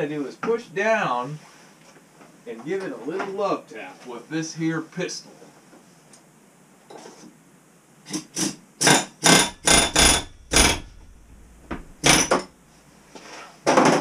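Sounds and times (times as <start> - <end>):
pneumatic air chisel hammering: 8.1 - 12.5.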